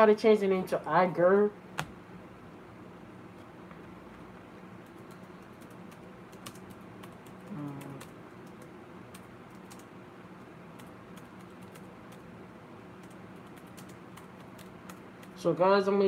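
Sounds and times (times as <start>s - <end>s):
keyboard typing clicks: 4.8s - 9.9s.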